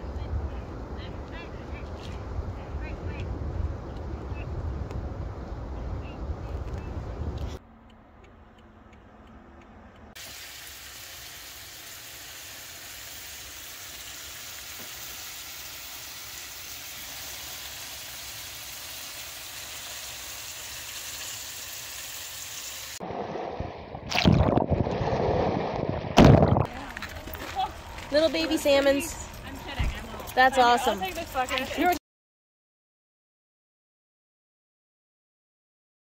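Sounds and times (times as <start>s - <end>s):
fish sizzling in frying pan: 10.2s - 23.0s.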